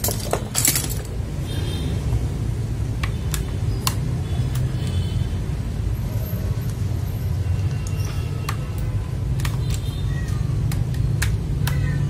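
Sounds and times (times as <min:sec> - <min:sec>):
plastic keyboard switch clicks: 0:07.8 - 0:12.0.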